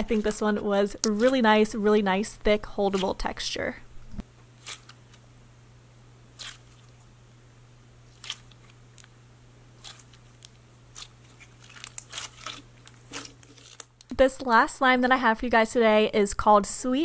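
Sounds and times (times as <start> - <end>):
slime squeezed by hand: 6.4 - 7.0.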